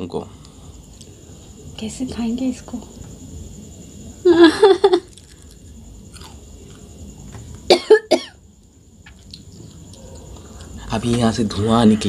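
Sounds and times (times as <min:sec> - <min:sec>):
woman coughing: 0:07.7 - 0:08.4.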